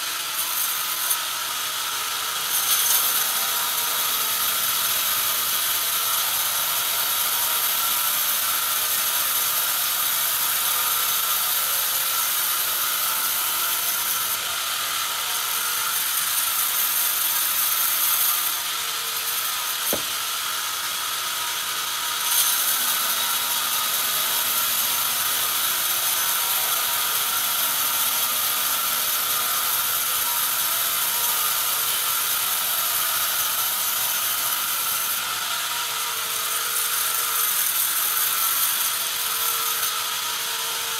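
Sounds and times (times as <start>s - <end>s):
band saw cutting log: 0.0s - 40.9s.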